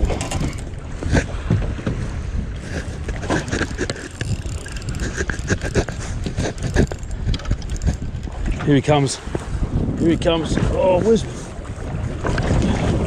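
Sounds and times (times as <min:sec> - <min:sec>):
water slapping boat hull: 0:00.0 - 0:13.0
wind on microphone: 0:00.0 - 0:13.0
knocks and clicks: 0:03.0 - 0:08.4.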